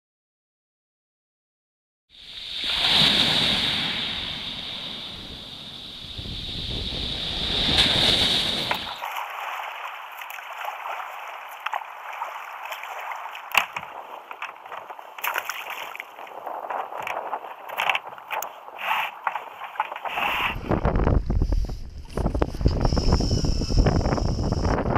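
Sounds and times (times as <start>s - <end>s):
wind: 2.1s - 24.9s
waves breaking on pebble beach: 2.4s - 20.6s.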